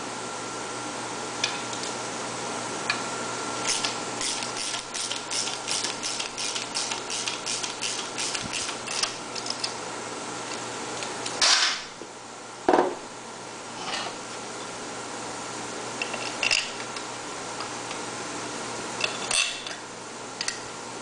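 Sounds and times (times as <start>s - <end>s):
steady background hum: 0.0s - 21.0s
hand ratchet clicking: 3.7s - 9.1s.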